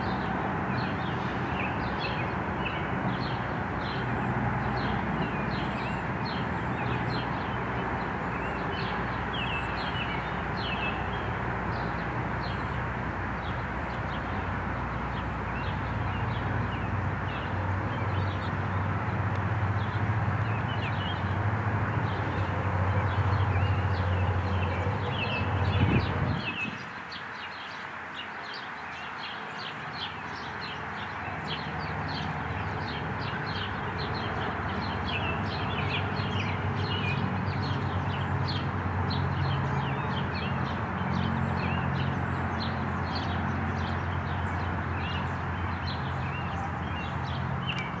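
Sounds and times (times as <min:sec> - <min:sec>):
small birds chirping: 0:22.0 - 0:48.0.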